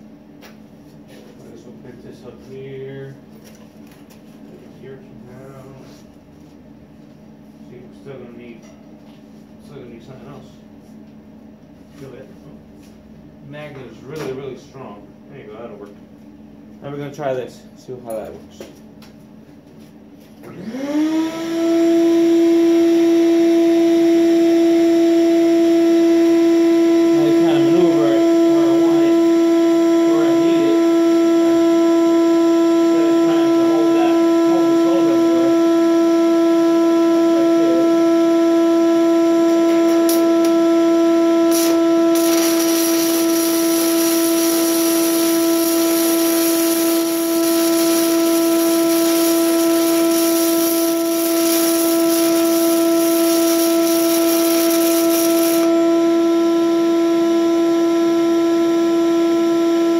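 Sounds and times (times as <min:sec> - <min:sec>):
shop vac motor droning: 0:00.0 - 0:59.9
welding arc strikes: 0:39.6 - 0:40.6, 0:41.4 - 0:55.9
welding arc crackling and hissing: 0:41.5 - 0:55.8.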